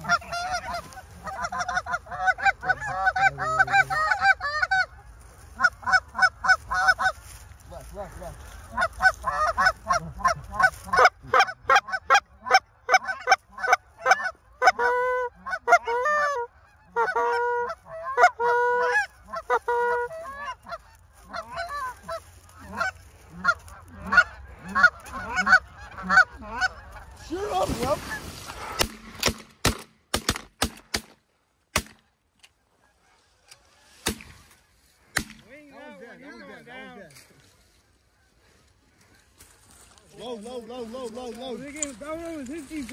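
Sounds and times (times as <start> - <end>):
geese honking: 0.0 - 29.0, 32.0 - 42.9
rustling: 19.1 - 26.0, 26.7 - 29.4, 37.1 - 42.9
sharp cracks: 28.5 - 32.1, 34.0 - 34.5, 35.1 - 35.5.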